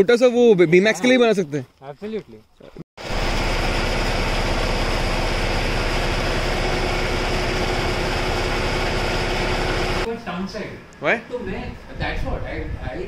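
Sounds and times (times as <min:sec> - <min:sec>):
motor-like hum: 0:03.0 - 0:10.1.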